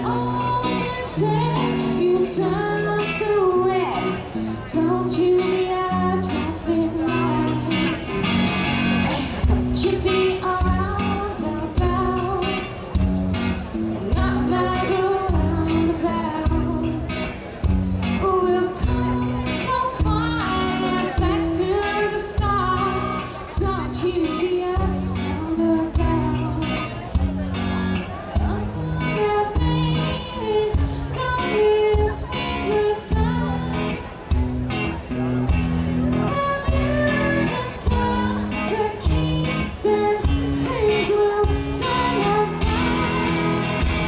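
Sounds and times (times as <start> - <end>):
woman singing: 0.0 - 8.1, 9.7 - 12.9, 14.0 - 17.3, 18.0 - 27.1, 28.3 - 34.4, 36.2 - 44.0
bass: 0.0 - 44.0.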